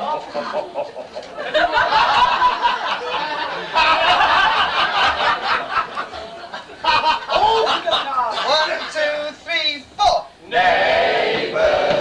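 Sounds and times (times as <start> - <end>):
audience laughing: 0.0 - 9.3.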